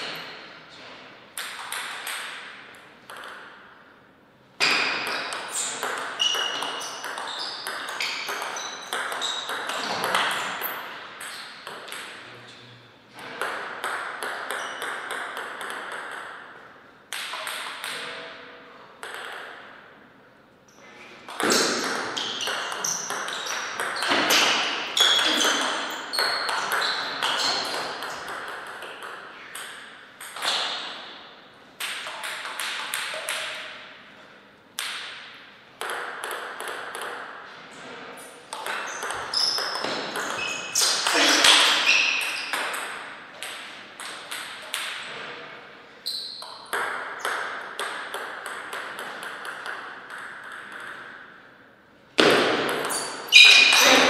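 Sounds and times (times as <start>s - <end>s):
ping pong ball clicking: 1.4s - 3.6s, 4.7s - 10.4s, 11.2s - 12.2s, 13.4s - 18.2s, 19.0s - 19.8s, 21.3s - 30.8s, 31.8s - 33.7s, 35.8s - 37.4s, 38.5s - 45.1s, 46.4s - 51.3s.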